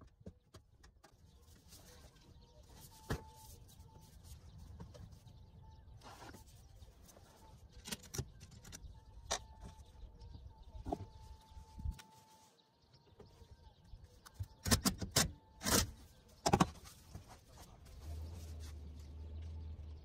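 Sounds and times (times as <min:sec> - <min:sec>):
tools and metal parts clicking: 0:07.8 - 0:09.9.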